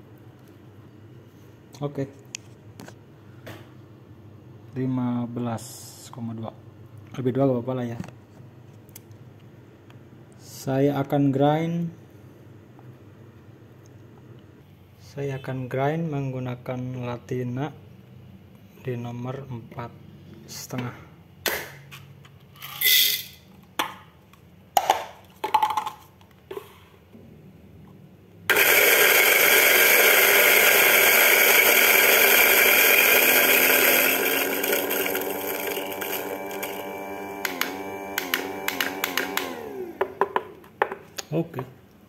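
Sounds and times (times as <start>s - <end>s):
coffee grinder whirring: 28.5s - 40.6s.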